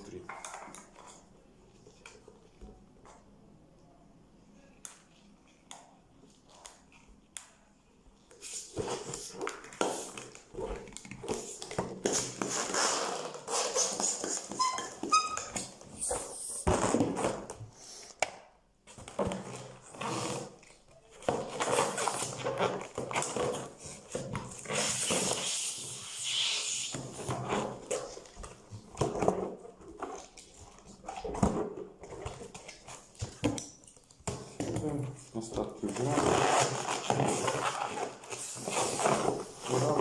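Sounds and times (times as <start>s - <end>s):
balloons squeaking and rubbing: 11.3s - 17.2s, 19.6s - 20.8s, 21.5s - 28.2s, 35.8s - 40.0s.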